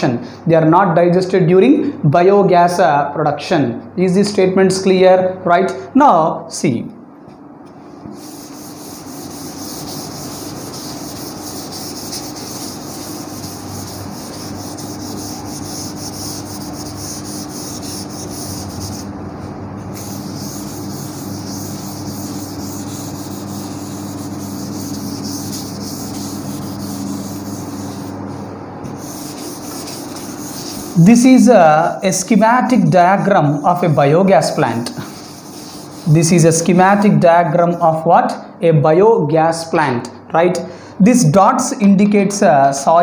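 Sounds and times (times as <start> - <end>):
duster wiping chalkboard: 7.8 - 37.2.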